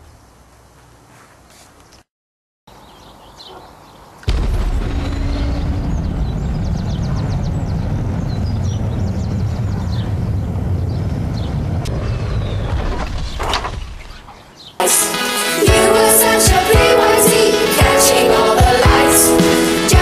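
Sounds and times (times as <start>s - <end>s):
jet thrusters rumbling: 4.3s - 14.2s.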